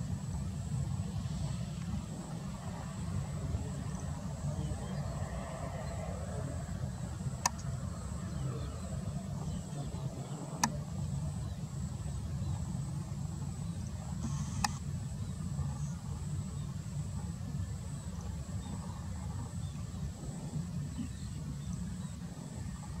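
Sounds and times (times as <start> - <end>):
distant jet engines rumbling: 0.0 - 23.0
sharp clicks: 14.2 - 14.8.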